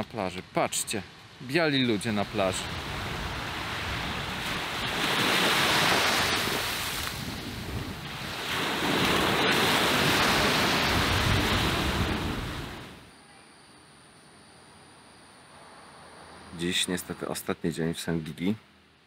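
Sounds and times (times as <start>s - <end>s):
surf breaking on beach: 2.2s - 13.0s
wind buffeting microphone: 2.3s - 12.9s.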